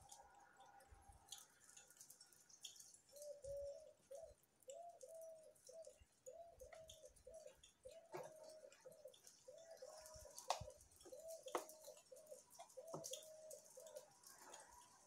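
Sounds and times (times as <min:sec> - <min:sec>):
dove cooing: 0:03.1 - 0:15.0.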